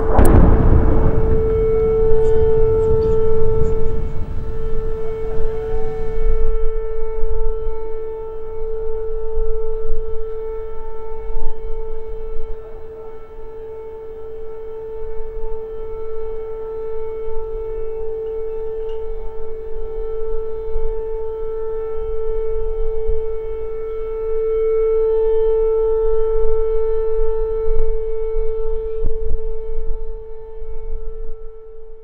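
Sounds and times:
low rumble: 0.0 - 7.6
air raid siren steady tone: 0.0 - 32.0.

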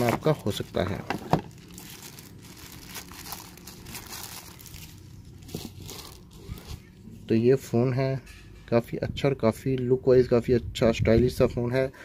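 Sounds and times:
plastic bag crinkling: 0.0 - 6.9.

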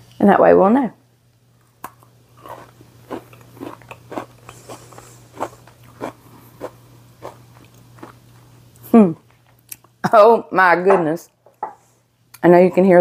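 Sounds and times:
crunchy chewing: 1.8 - 8.8.

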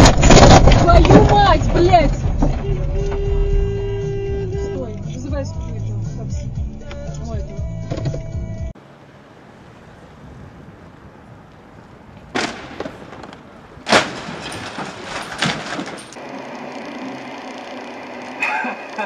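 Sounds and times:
sharp knocks and thuds: 0.0 - 3.3, 12.3 - 16.2.

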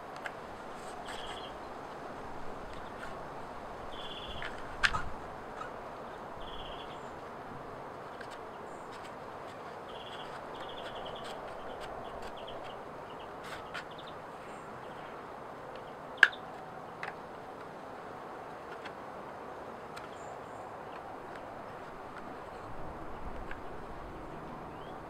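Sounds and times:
birch bark clicks and crackles: 0.1 - 2.0, 3.9 - 14.2, 15.7 - 17.8, 18.4 - 19.0, 19.8 - 23.8.

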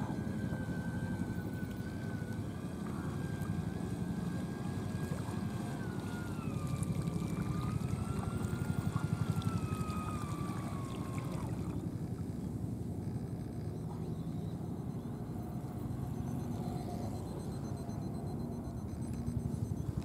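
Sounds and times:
electric motor whining: 0.0 - 12.0
wind: 0.0 - 20.0.

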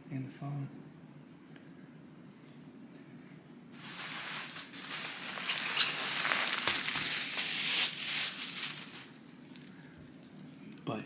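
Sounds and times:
plastic bag crinkling: 3.8 - 10.6.

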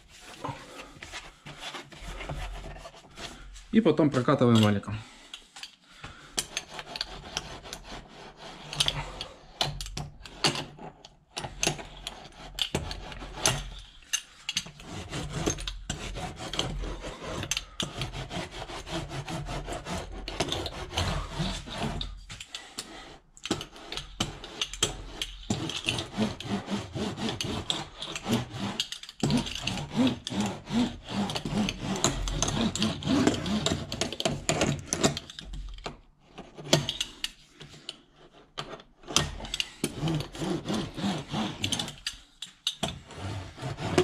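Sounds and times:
hand roller scraping on foil sheet: 14.7 - 22.2, 23.6 - 35.2, 39.3 - 42.1, 43.0 - 44.0.

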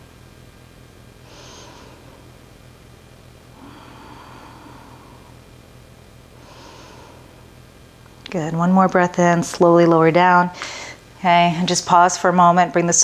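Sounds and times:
steady low hum: 0.0 - 13.0
woman breathing: 1.2 - 2.4, 3.5 - 5.5, 6.3 - 7.5, 10.5 - 11.1.

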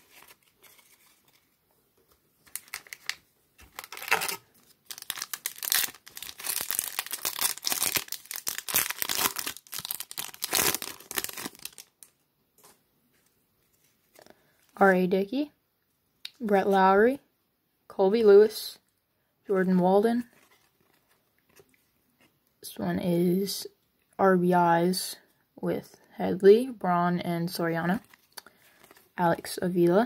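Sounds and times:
foil wrapper crinkling and tearing: 2.4 - 12.1.

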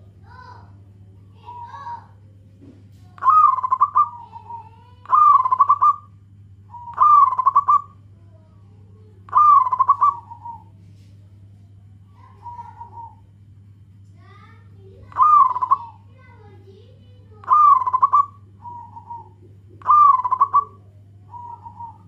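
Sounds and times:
dove cooing: 1.3 - 2.1, 3.1 - 8.0, 9.3 - 10.8, 12.2 - 13.4, 15.0 - 22.0.

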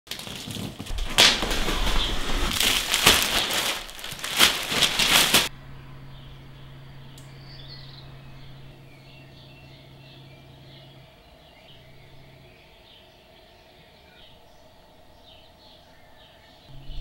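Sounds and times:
plastic sheeting rustling and crackling: 0.1 - 5.5
low steady hum: 0.9 - 17.0
faint bird chirps: 5.6 - 17.0.

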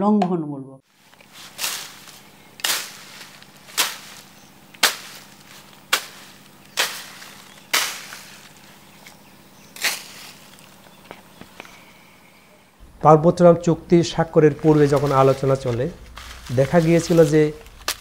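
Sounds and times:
hoe chopping into soil: 1.4 - 9.2, 9.8 - 10.6.

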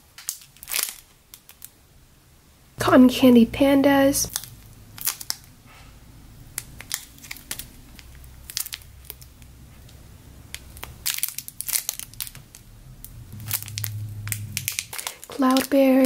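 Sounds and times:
plastic bags crinkling: 0.2 - 1.7, 4.3 - 5.5, 6.5 - 12.7, 13.4 - 16.0.

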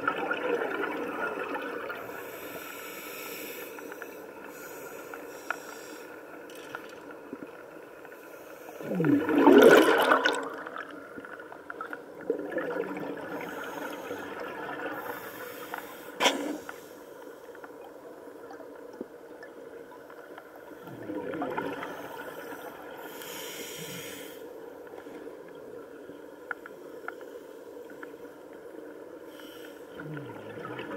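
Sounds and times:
regulator bubbles rushing underwater: 0.0 - 2.4, 8.8 - 15.4, 17.8 - 23.0, 29.9 - 30.9.

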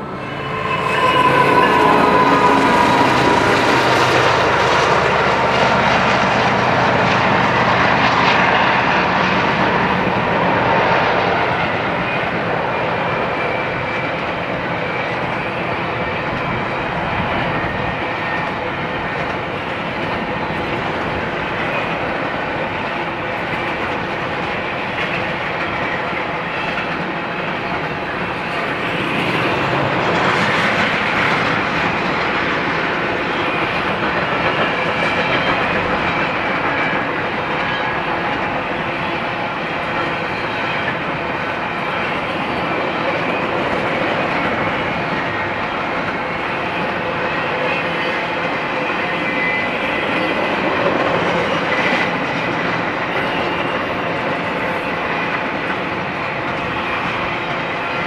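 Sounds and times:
diesel locomotive engines: 0.0 - 58.0
train wheels on rail: 0.0 - 58.0.

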